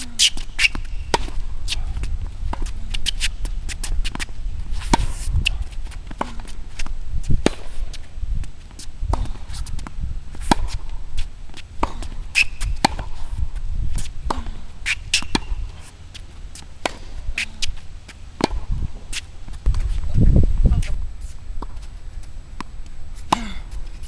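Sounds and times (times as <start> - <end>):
shoe squeaks: 0.0 - 1.9, 2.6 - 5.6, 12.2 - 12.9, 14.8 - 16.3
steady low rumble: 0.0 - 24.0
rackets striking tennis ball: 0.1 - 8.1, 8.8 - 13.4, 14.0 - 19.9.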